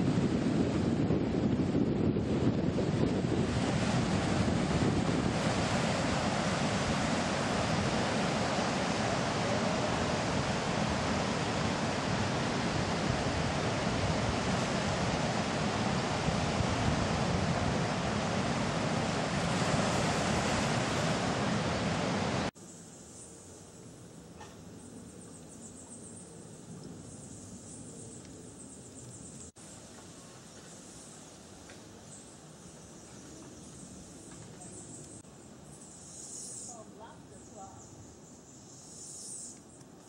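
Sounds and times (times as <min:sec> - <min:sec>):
wind on microphone: 0:00.0 - 0:22.5
waves breaking on beach: 0:03.1 - 0:22.6.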